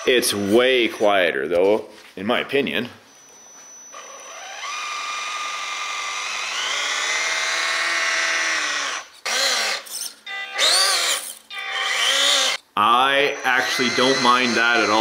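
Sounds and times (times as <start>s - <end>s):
electric motor whine: 3.2s - 12.6s, 13.3s - 15.0s.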